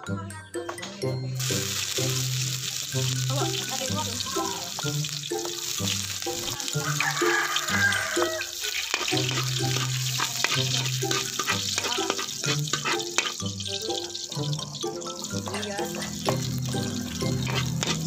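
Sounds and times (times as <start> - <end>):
background music: 0.0 - 18.0
garlic sizzling in hot oil: 1.4 - 18.0
metal ladle stirring in wok: 4.7 - 18.0.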